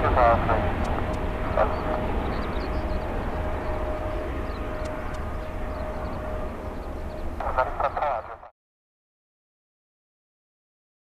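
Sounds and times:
jet engine rumble: 0:00.0 - 0:08.5.

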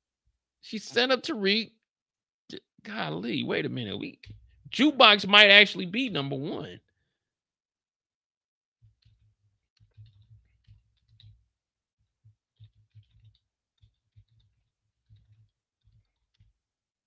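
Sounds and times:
faint typing on keyboard: 0:08.8 - 0:16.8.

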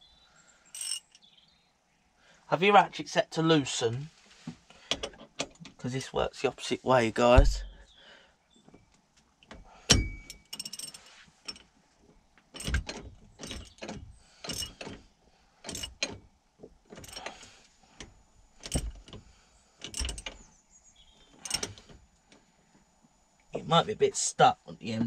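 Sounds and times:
hand ratchet clicking: 0:00.8 - 0:01.1, 0:15.7 - 0:16.1, 0:21.4 - 0:21.8.

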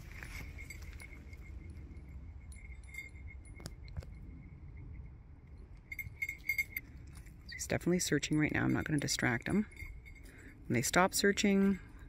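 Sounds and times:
dog collar jingling: 0:00.0 - 0:04.4, 0:05.8 - 0:12.0.

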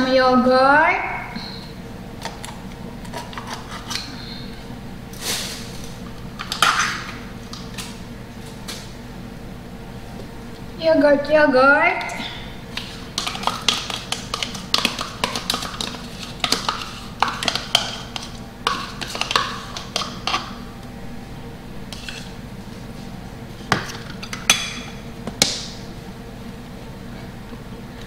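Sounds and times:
spoon scooping yogurt: 0:12.8 - 0:20.5.

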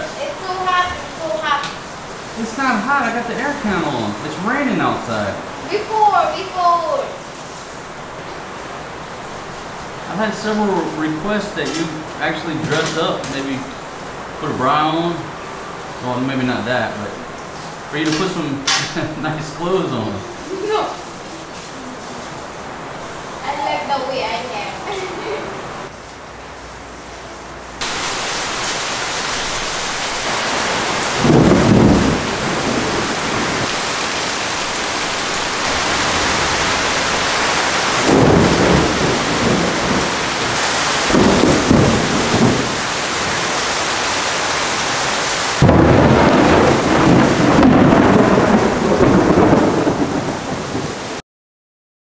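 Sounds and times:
thunder rolling: 0:00.0 - 0:07.4, 0:10.0 - 0:15.4, 0:27.8 - 0:44.6, 0:45.6 - 0:51.2
steady rain: 0:00.0 - 0:51.2.

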